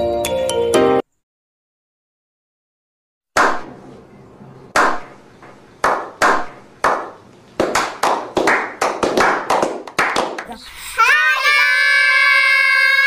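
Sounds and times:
hand claps with echo: 4.8s - 5.1s, 5.8s - 10.5s.

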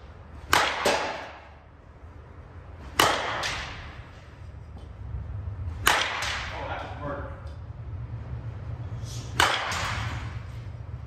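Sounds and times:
softball bat cracking: 0.2s - 1.7s, 2.7s - 4.2s, 5.6s - 6.9s, 9.2s - 10.5s
quieter ball impact: 0.4s - 1.7s, 2.7s - 4.1s, 5.6s - 7.6s, 9.3s - 10.4s.

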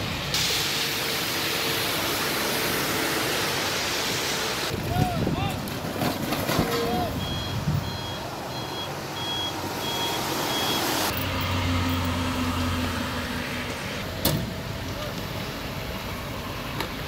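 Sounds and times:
heavy engine humming: 0.0s - 17.0s
truck reversing alarm beeping: 6.7s - 11.2s.

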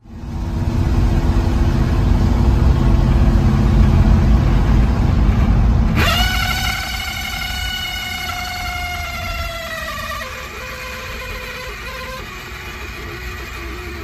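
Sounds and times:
rumbling racket from dashboard: 0.0s - 14.0s
shrill squeal: 6.0s - 14.0s.

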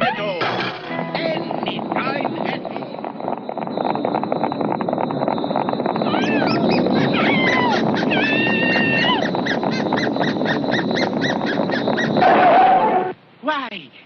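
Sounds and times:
horse hoofbeats galloping: 0.0s - 12.4s
coach wheels clattering: 0.0s - 12.6s.

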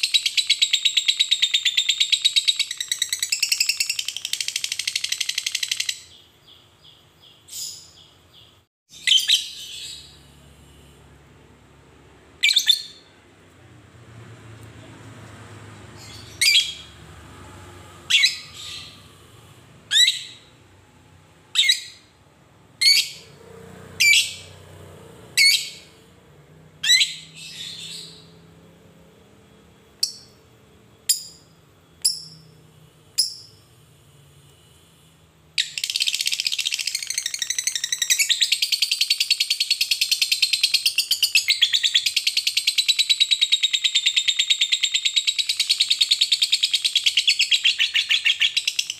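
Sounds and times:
lovebird chirping and trilling: 0.0s - 10.3s, 12.4s - 13.1s, 15.9s - 17.0s, 18.0s - 19.2s, 19.8s - 20.6s, 21.5s - 22.1s, 22.8s - 23.4s, 24.0s - 24.7s, 25.4s - 26.0s, 26.8s - 28.4s, 30.0s - 30.4s, 33.2s - 33.6s, 35.6s - 48.9s.

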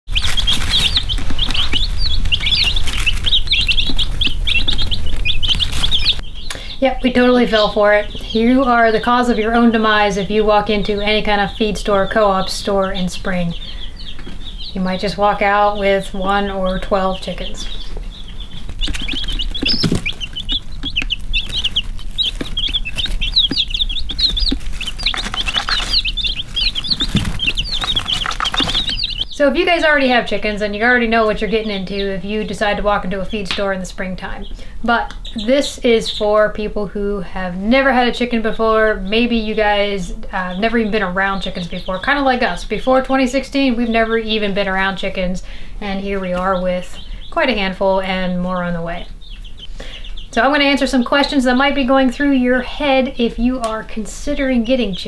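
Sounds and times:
baby chicks peeping: 0.0s - 55.0s.

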